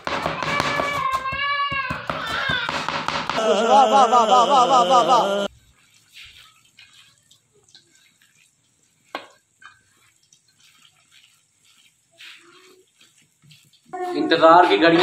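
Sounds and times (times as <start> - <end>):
wet batter squelching: 5.5 - 15.0.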